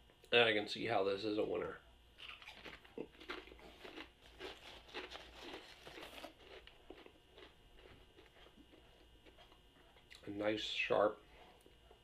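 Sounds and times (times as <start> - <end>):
plastic chip bag crinkling: 2.2 - 9.6
potato chips crunching: 2.2 - 10.3.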